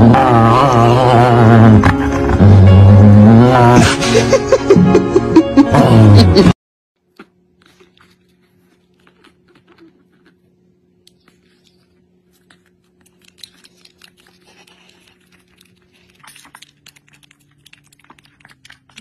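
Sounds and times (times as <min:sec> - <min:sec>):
faint steady hum: 0:07.0 - 0:19.0
puppy licking and smacking: 0:11.1 - 0:19.0.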